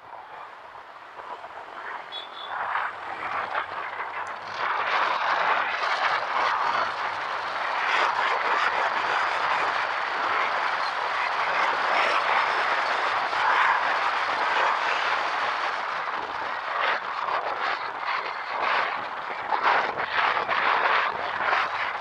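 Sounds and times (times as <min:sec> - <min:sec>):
wind rushing over microphone: 0:00.0 - 0:22.0
faint motorcycle engine: 0:00.4 - 0:10.9.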